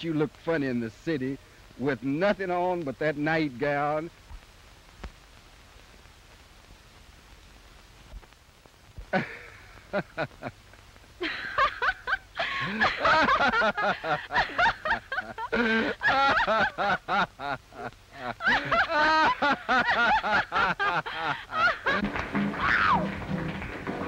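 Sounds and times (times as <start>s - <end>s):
woman laughing: 9.2s - 10.5s, 11.2s - 22.1s
music: 22.0s - 24.0s.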